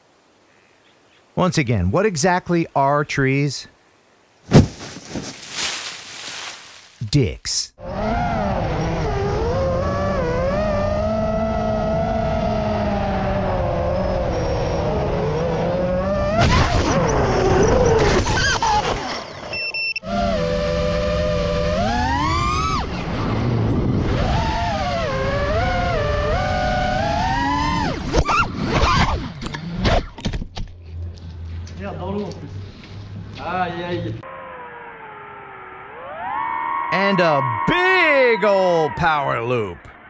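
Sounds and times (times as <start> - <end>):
drone hitting brush rustling: 4.4 - 7.0
quadcopter motors whining: 17.1 - 29.8.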